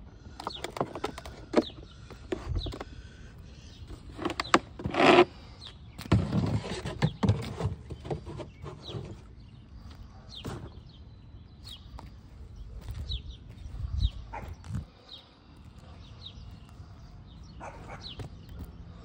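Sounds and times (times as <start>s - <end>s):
footsteps scuffing on grass: 11.6s - 14.8s.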